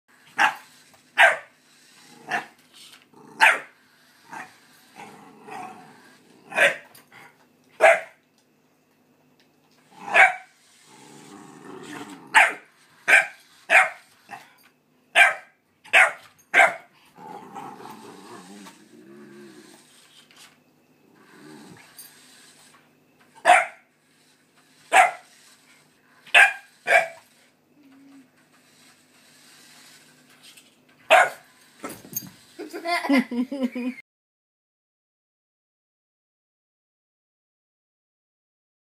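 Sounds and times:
puppy barking: 0:00.4 - 0:00.6, 0:01.2 - 0:01.5, 0:03.4 - 0:03.7, 0:06.5 - 0:06.9, 0:07.8 - 0:08.2, 0:10.1 - 0:10.5, 0:12.3 - 0:14.0, 0:15.2 - 0:16.9, 0:23.4 - 0:23.8, 0:24.9 - 0:25.3, 0:26.3 - 0:27.2, 0:31.1 - 0:31.4
puppy growling: 0:01.8 - 0:03.5, 0:04.2 - 0:06.6, 0:09.8 - 0:12.4, 0:17.0 - 0:19.9, 0:21.0 - 0:21.9.

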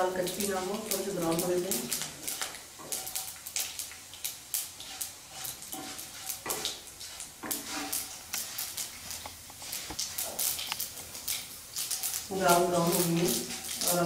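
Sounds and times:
lentils sizzling in hot oil: 0:00.0 - 0:14.0
spatula stirring in pan: 0:00.0 - 0:14.0.

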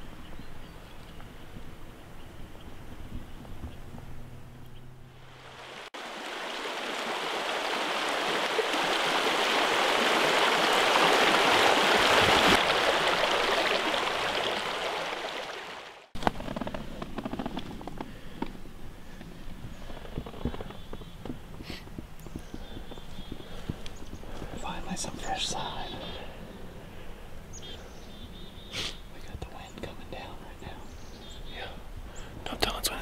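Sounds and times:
stream water rushing: 0:05.1 - 0:16.2.

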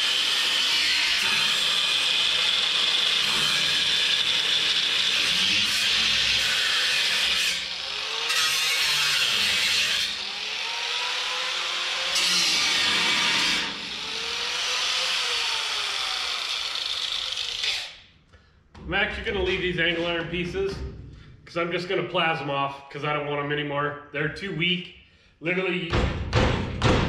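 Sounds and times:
power tool cutting steel: 0:00.0 - 0:18.1.

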